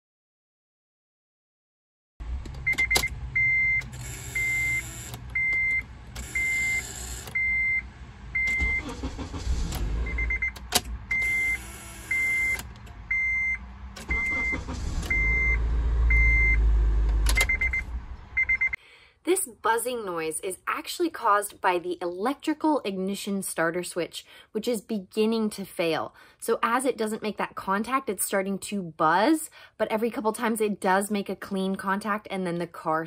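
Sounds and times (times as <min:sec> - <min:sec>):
ignition starter electrical buzzing: 0:02.2 - 0:07.8, 0:08.4 - 0:17.8
dashboard warning chime beeping: 0:02.6 - 0:18.8.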